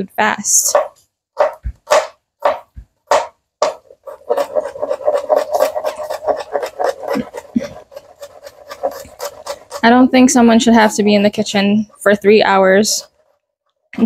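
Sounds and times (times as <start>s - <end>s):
knife chopping on plastic board: 0.6s - 9.8s.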